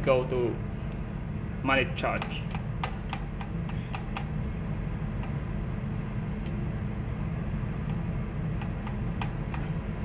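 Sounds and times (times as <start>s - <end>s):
low machinery hum: 0.0s - 10.0s.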